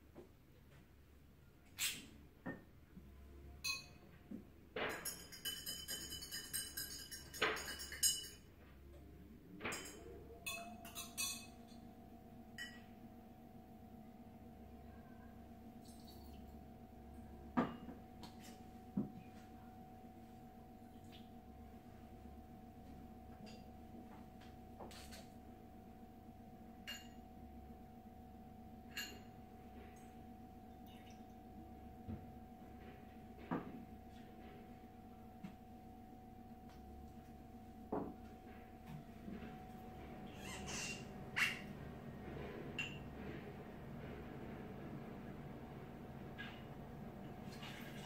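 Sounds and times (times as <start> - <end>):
faint steady hum: 0.0 - 48.0
ice cubes and glassware clinking: 4.9 - 8.4.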